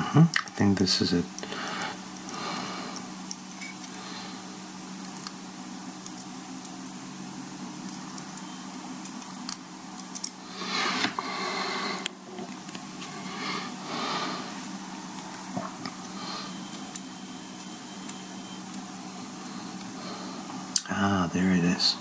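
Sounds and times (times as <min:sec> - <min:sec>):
steady low hum: 0:00.0 - 0:22.0
breathy rush of noise: 0:10.4 - 0:12.4, 0:13.0 - 0:16.7.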